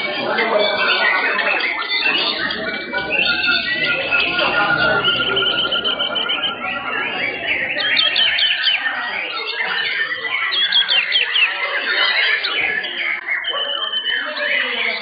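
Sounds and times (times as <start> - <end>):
birds singing whistled phrases: 0.1 - 15.0.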